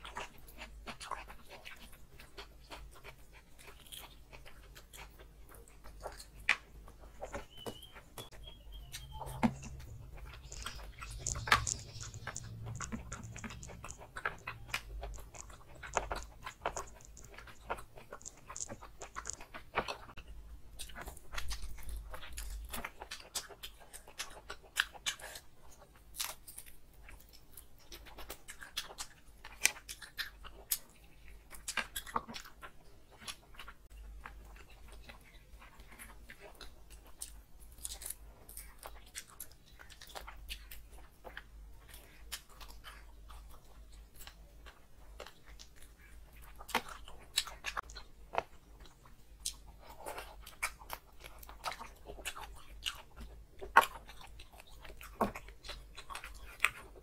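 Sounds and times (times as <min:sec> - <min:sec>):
crunchy bites: 0:00.0 - 0:57.0
wet chewing: 0:00.0 - 0:57.0
lip smacks: 0:03.7 - 0:20.2.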